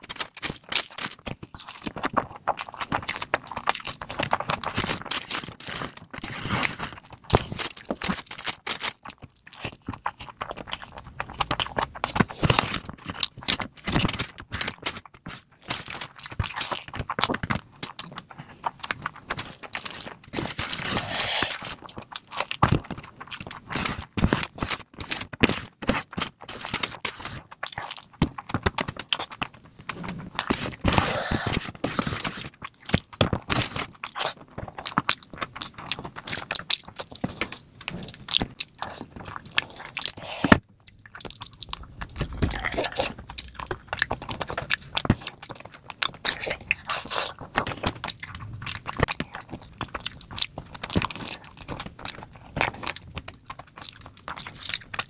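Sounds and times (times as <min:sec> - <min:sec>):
wet chewing and lip-smacking: 0:00.0 - 0:55.0
hand squeezing rice: 0:20.7 - 0:21.8, 0:30.8 - 0:31.7, 0:39.8 - 0:40.6.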